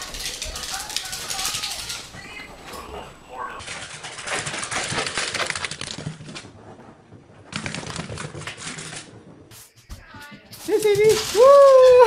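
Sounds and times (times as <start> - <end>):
dog claws clicking on hard floor: 0.0 - 2.2, 3.6 - 9.4.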